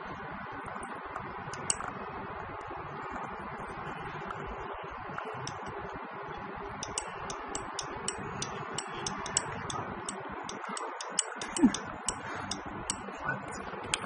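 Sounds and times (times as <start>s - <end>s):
solenoid valve clicking: 6.8s - 13.0s.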